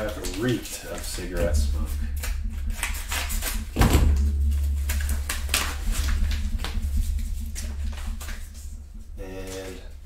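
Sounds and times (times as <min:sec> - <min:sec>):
steady low hum: 0:00.0 - 0:10.0
dull thump: 0:01.4 - 0:08.9.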